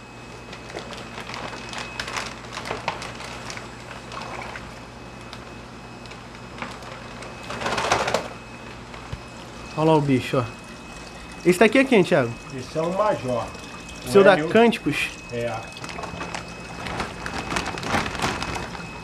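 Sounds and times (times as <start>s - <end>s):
plastic bag crinkling: 0.4s - 4.7s, 6.1s - 9.8s, 14.7s - 19.0s
water splashing and dripping: 9.6s - 19.0s.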